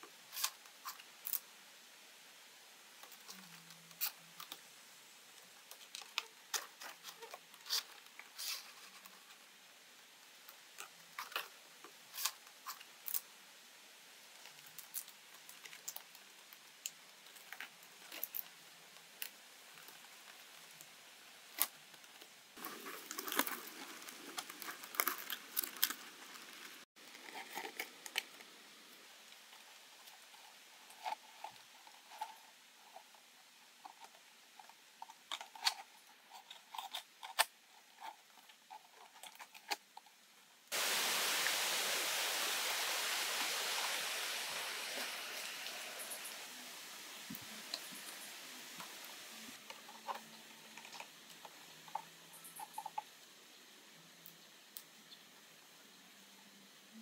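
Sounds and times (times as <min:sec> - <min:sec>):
palm leaves rustling and crackling: 0:14.3 - 0:32.9, 0:40.7 - 0:51.8.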